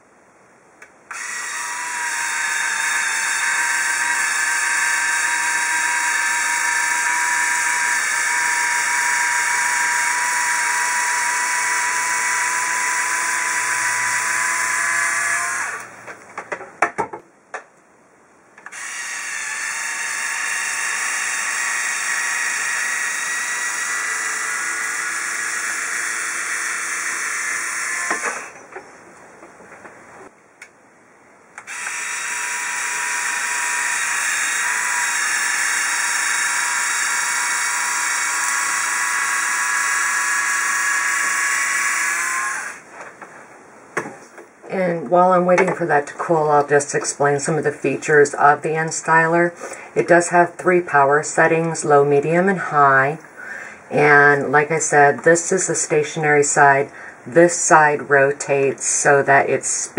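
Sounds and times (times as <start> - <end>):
hair styler motor whine: 1.1 - 16.0, 18.7 - 28.6, 31.6 - 42.8.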